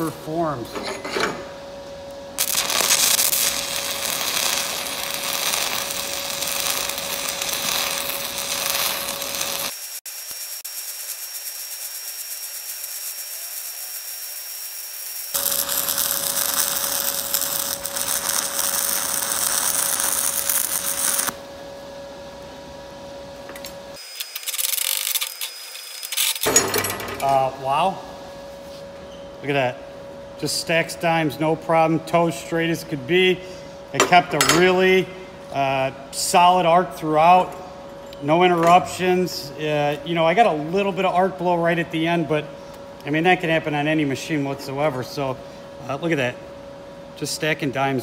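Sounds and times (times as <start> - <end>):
welding arc crackling: 2.4 - 21.4, 23.9 - 26.5.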